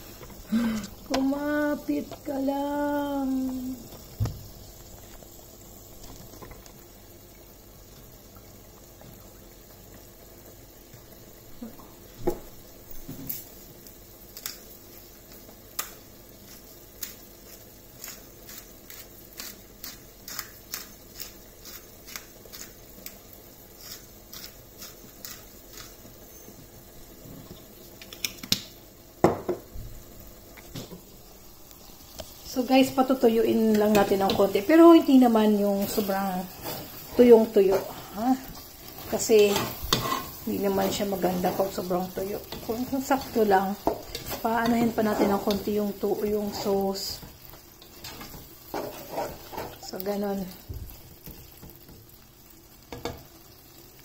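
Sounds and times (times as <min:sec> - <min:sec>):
pot of sauce simmering: 0:00.0 - 0:13.1.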